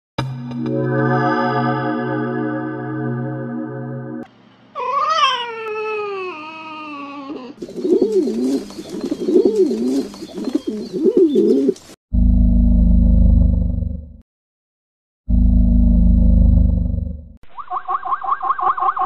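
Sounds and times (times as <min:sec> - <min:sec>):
long falling animal cry: 0:04.8 - 0:07.6
pigeon cooing: 0:04.8 - 0:11.8.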